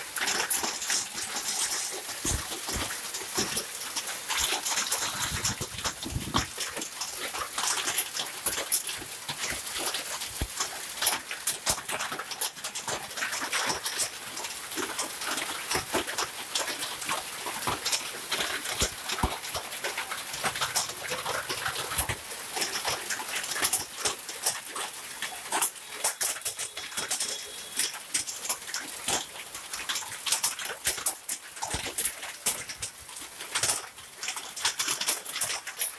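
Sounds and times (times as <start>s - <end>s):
hail hissing down: 0.0s - 35.9s
hailstones clicking and splashing: 0.0s - 35.9s.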